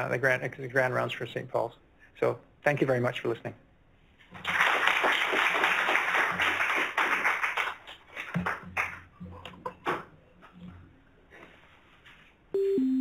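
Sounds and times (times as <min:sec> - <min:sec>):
audience applauding: 0:04.4 - 0:09.0.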